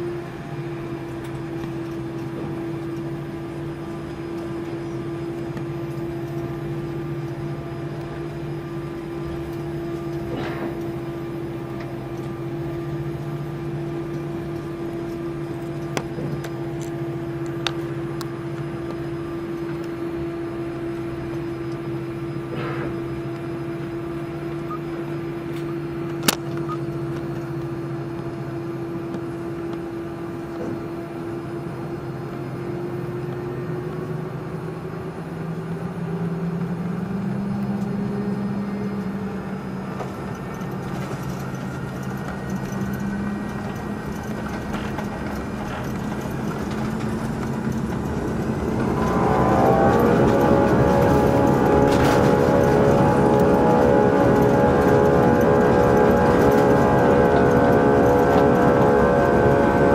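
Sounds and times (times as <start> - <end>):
airplane cabin engine drone: 0.0 - 59.9
sharp clicks in cabin: 25.5 - 28.3.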